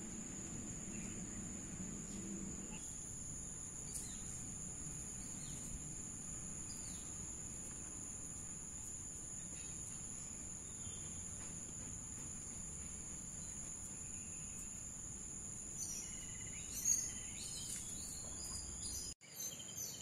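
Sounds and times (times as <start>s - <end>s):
insects droning: 0.0s - 20.0s
bird chirps: 15.7s - 20.0s.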